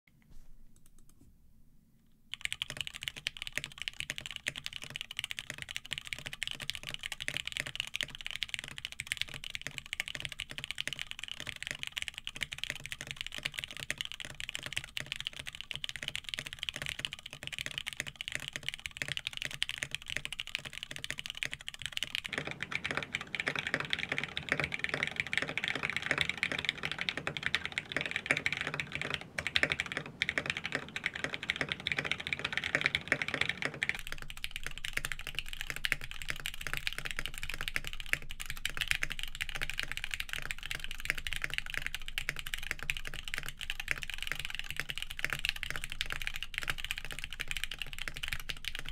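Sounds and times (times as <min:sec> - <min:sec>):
fast typing on mechanical keyboard: 0:02.3 - 0:48.9.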